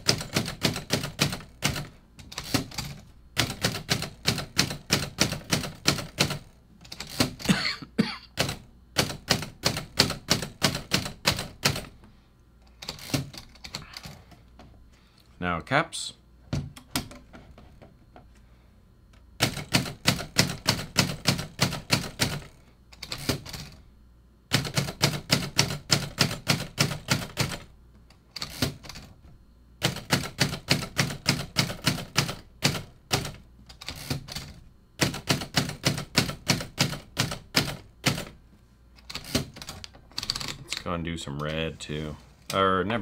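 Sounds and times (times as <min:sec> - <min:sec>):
typewriter keystrokes: 0:00.0 - 0:07.5, 0:08.4 - 0:12.0, 0:12.8 - 0:14.2, 0:19.4 - 0:23.8, 0:24.5 - 0:27.7, 0:28.3 - 0:29.1, 0:29.8 - 0:38.3, 0:39.0 - 0:40.6.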